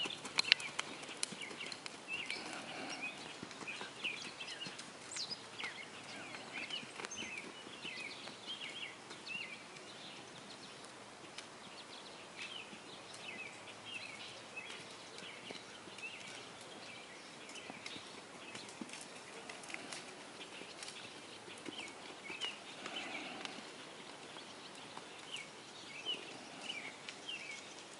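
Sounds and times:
horse hoofbeats on sand: 0.0 - 10.2, 14.6 - 26.4
small birds chirping: 0.0 - 27.9.

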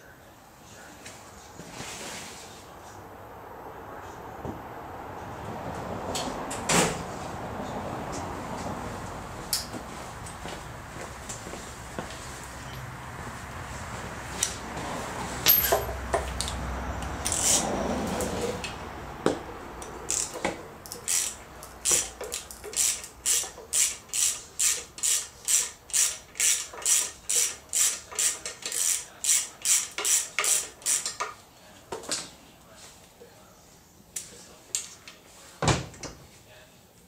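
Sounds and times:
handling of tools and parts: 15.2 - 17.6, 19.8 - 32.3
hand ratchet clicking: 19.8 - 31.3.

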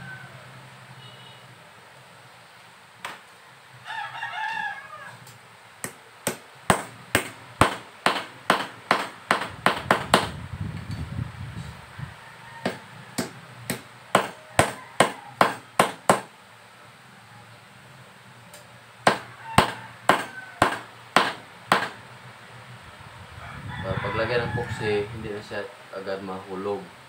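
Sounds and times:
rooster crowing: 0.0 - 0.7, 3.8 - 5.4, 11.9 - 15.8, 19.1 - 21.0, 23.3 - 25.8.

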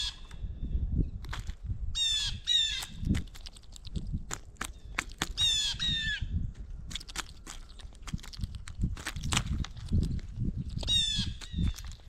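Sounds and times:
woodpecker rolling churr call: 2.0 - 3.0, 4.6 - 6.2, 10.8 - 12.0
birds pecking on feeder tray: 2.4 - 5.9, 6.8 - 12.0.

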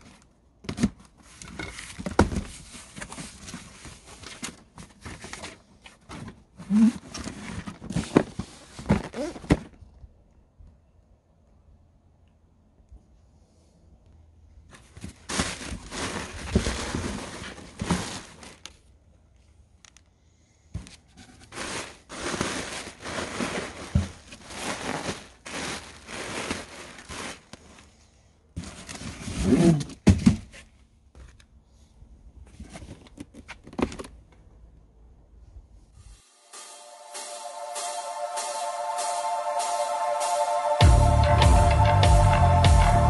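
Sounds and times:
cardboard scraping: 0.7 - 9.8, 14.7 - 18.6, 20.8 - 27.8, 28.6 - 30.7
plastic packaging crinkling: 15.0 - 18.8, 21.4 - 27.8.

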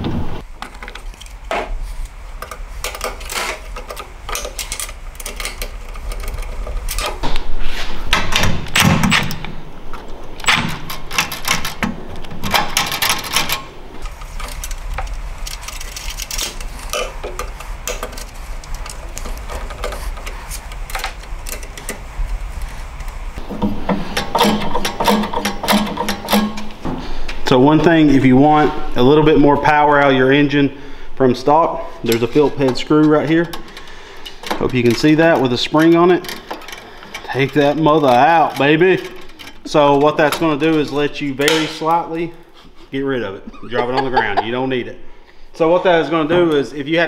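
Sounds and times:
plastic parts clattering: 10.9 - 23.1.

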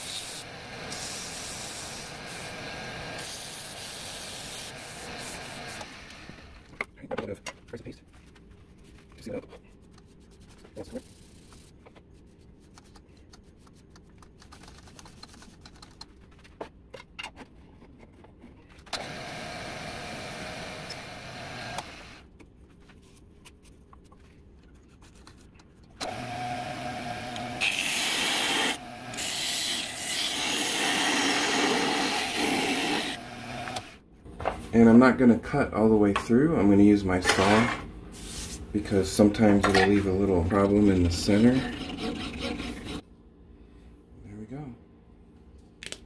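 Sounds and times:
lathe motor hum: 26.0 - 34.0
tool scraping spinning wood: 26.0 - 34.0, 38.9 - 43.0.

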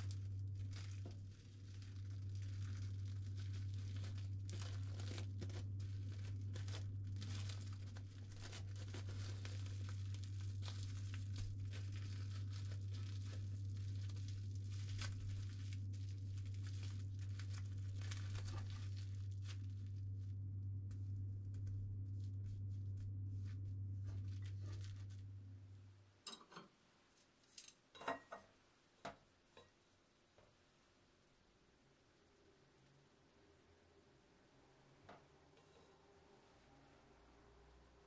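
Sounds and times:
cling film crinkling: 0.0 - 25.3
steady low hum: 0.0 - 26.5.

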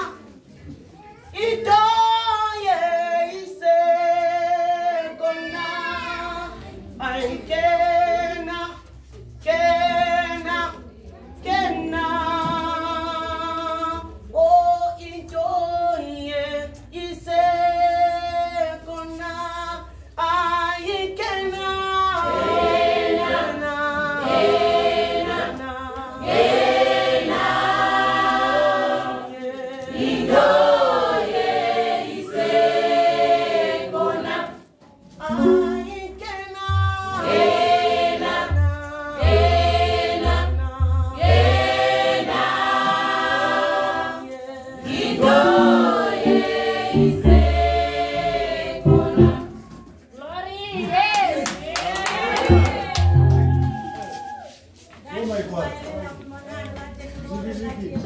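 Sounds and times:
women's choir singing a hymn: 9.4 - 49.8.

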